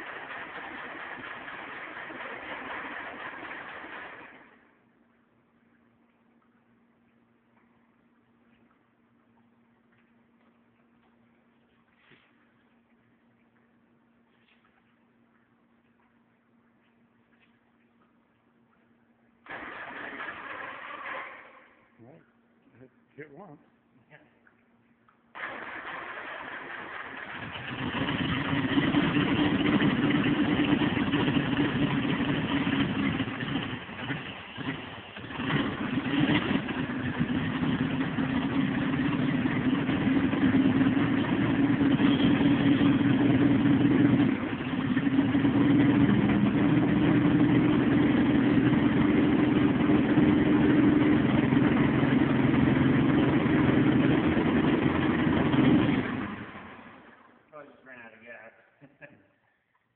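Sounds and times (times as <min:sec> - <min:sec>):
tractor engine running: 0:00.0 - 0:04.8, 0:19.4 - 0:21.6, 0:25.4 - 0:57.3.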